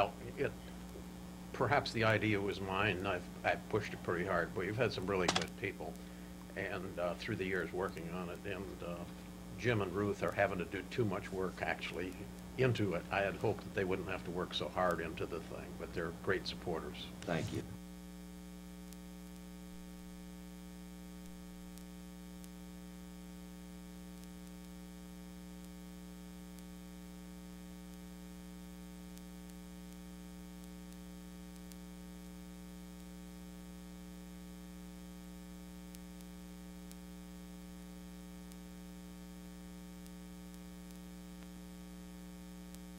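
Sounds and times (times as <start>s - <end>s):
buzzy mains hum: 0.0s - 42.9s.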